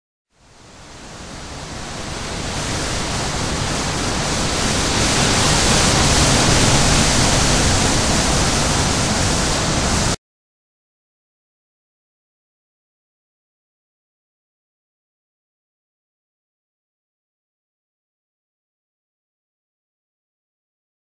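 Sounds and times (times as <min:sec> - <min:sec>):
static rushing noise: 0:00.4 - 0:10.2.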